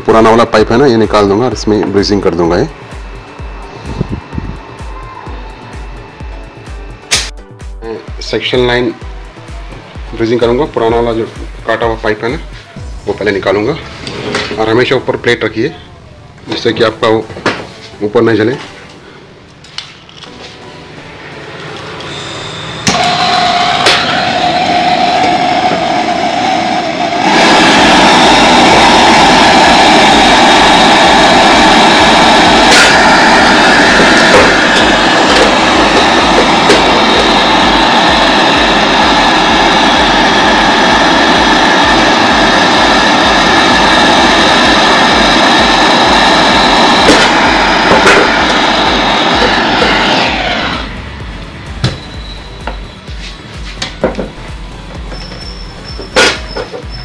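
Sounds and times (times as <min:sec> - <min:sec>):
gas torch hissing: 0:22.0 - 0:52.9.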